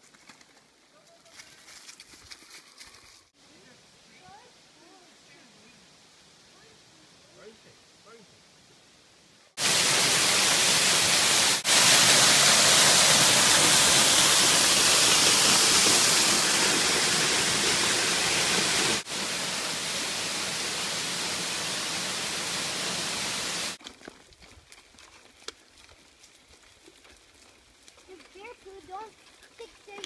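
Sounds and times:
waterfall rushing and splashing: 0:09.6 - 0:23.8.

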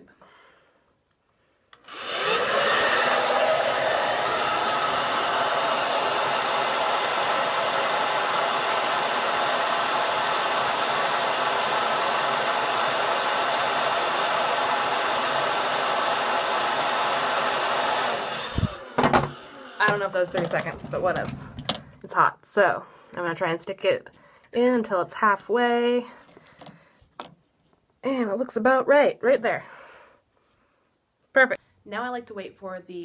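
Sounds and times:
hair dryer blowing: 0:01.8 - 0:22.3.

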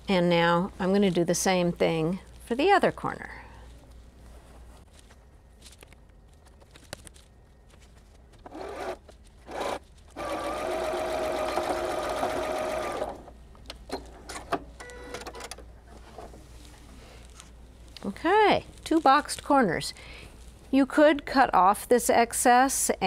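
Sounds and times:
sewing machine stitching: 0:08.4 - 0:13.3.

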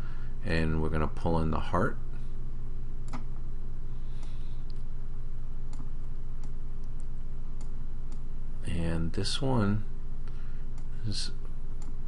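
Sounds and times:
steady low hum: 0:00.0 - 0:12.0
computer mouse clicks: 0:11.8 - 0:12.0.

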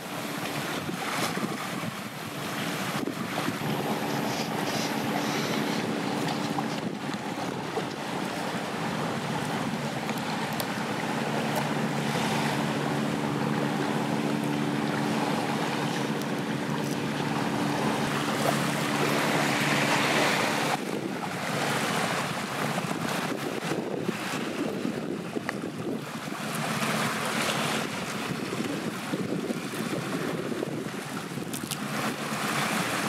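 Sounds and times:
steady low hum: 0:00.0 - 0:21.2
surf rushing: 0:00.0 - 0:33.0
wind on microphone: 0:00.0 - 0:33.0.

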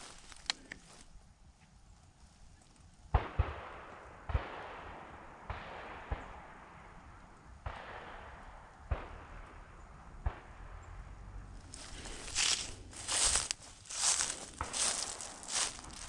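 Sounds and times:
shotgun shots with echo: 0:03.2 - 0:06.9, 0:07.6 - 0:09.6, 0:10.2 - 0:10.8.

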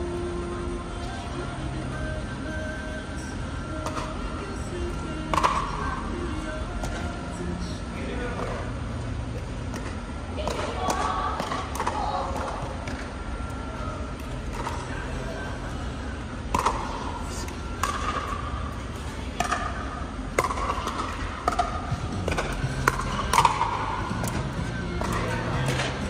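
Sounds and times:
steady low hum: 0:00.0 - 0:26.0
paddles hitting plastic ball: 0:05.3 - 0:05.7, 0:16.5 - 0:18.3, 0:19.4 - 0:26.0.

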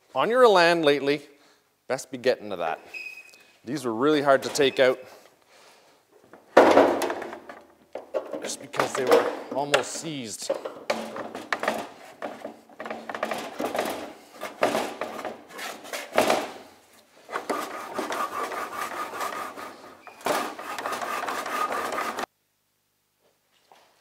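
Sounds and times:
metal scraping and clunking: 0:06.7 - 0:16.6, 0:17.3 - 0:22.3.

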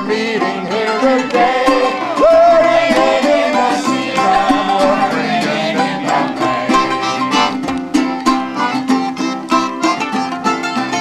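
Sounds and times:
banjo folk tune: 0:00.0 - 0:11.0.

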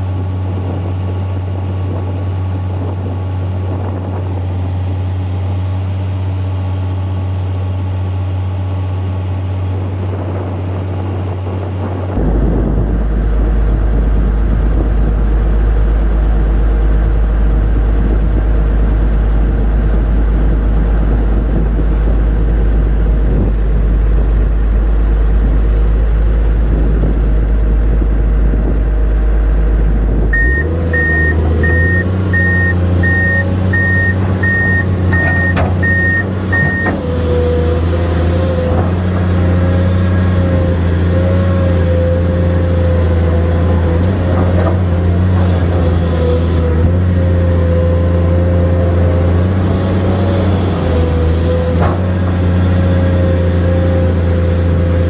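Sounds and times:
excavator diesel engine running: 0:00.0 - 0:55.0
reversing alarm beeping: 0:30.4 - 0:36.9.

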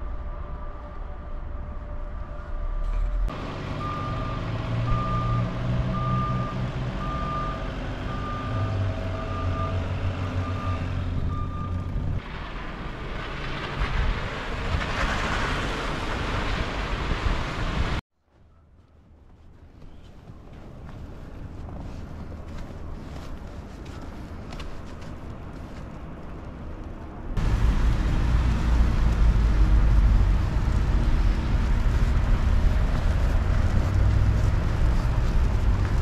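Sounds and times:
reversing alarm beeping: 0:03.8 - 0:11.9
rushing noise: 0:27.4 - 0:36.0
vehicle engine running: 0:27.4 - 0:36.0.

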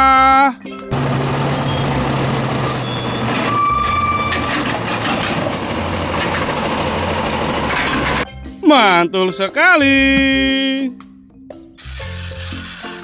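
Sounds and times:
mechanical arm noise: 0:00.9 - 0:08.2
garbage truck engine hum: 0:00.9 - 0:08.3.

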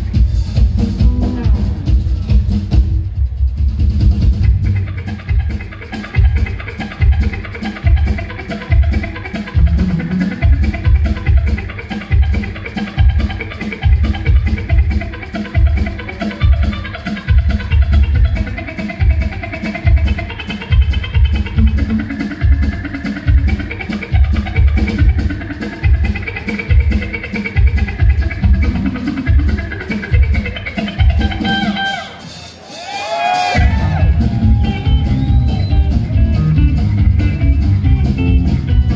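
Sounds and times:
drum kit beat: 0:00.0 - 0:38.9
fast electric guitar picking: 0:00.0 - 0:38.9.

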